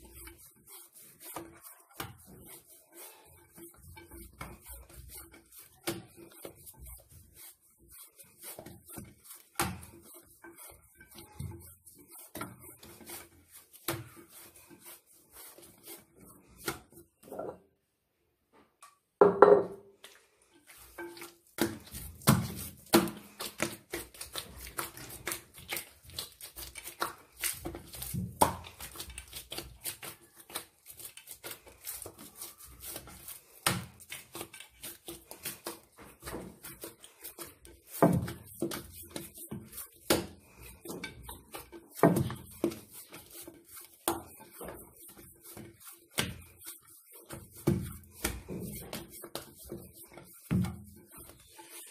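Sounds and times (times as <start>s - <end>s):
dough kneading thuds and slaps: 8.6s - 10.1s, 21.0s - 30.6s, 32.9s - 36.8s, 47.3s - 49.6s.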